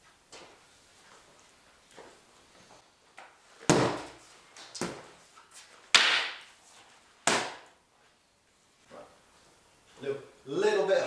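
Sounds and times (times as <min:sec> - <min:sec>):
cane smacking padded shields: 0:03.7 - 0:04.2, 0:07.2 - 0:07.6.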